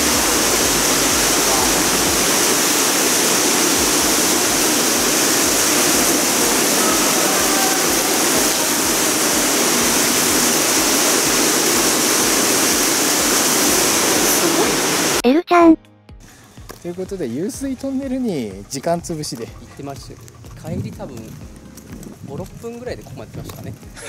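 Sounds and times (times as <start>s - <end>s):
water rushing through tunnel: 0.0s - 15.2s.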